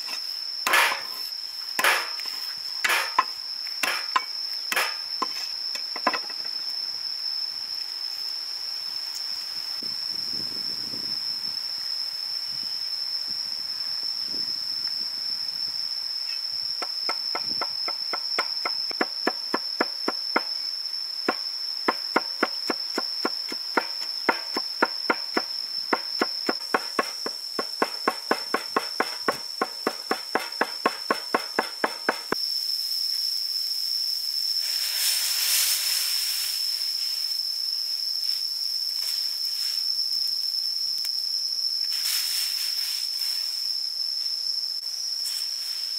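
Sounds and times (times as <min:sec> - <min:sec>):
high insect drone: 0:00.0 - 0:45.9
cleaver chopping on wooden board: 0:01.8 - 0:02.2, 0:02.9 - 0:05.0.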